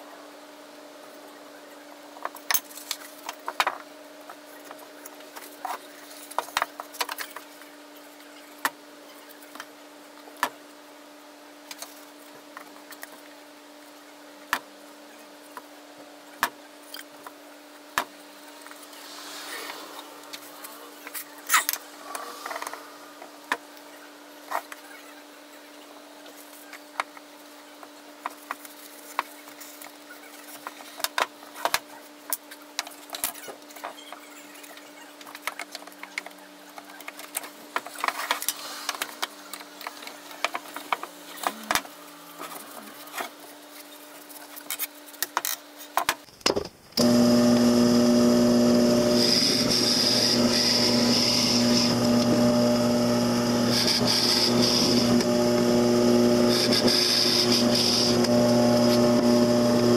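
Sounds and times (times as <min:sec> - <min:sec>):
drill press boring into wood: 0:47.0 - 0:59.9.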